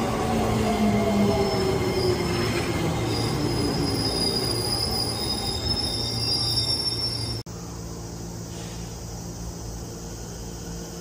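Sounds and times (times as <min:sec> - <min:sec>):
train wheels rumbling on rails: 0:00.0 - 0:07.4
high-pitched wheel squeal: 0:01.2 - 0:07.4.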